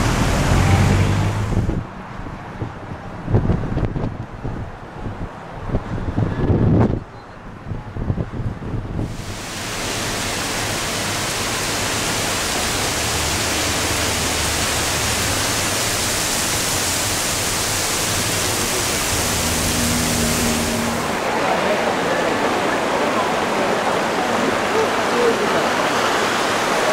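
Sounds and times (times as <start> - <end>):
heavy rain hissing: 9.0 - 26.9.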